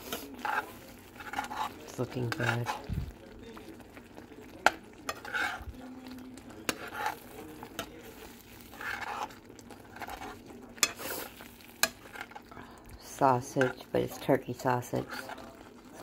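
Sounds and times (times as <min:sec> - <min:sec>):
faint sizzle: 0:00.0 - 0:16.0
utensil stirring in a pan: 0:00.0 - 0:16.0
utensil clicking against pan: 0:04.6 - 0:05.6, 0:06.6 - 0:08.0, 0:08.8 - 0:11.2, 0:11.8 - 0:12.4.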